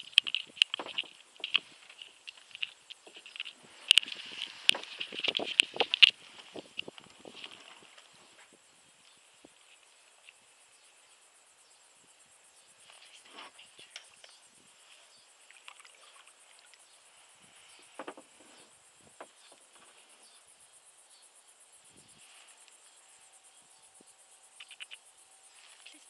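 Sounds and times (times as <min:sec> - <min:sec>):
water sounds: 0:00.0 - 0:08.2, 0:15.4 - 0:17.4
high-pitched insect chorus: 0:00.0 - 0:26.0.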